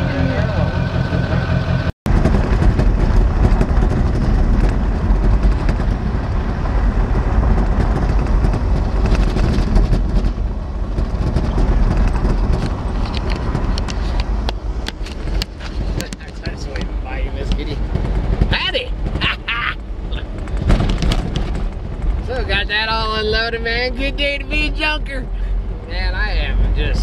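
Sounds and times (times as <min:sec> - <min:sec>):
truck engine and tyre rumble: 0:00.0 - 0:27.0
rattles and knocks: 0:02.1 - 0:22.6.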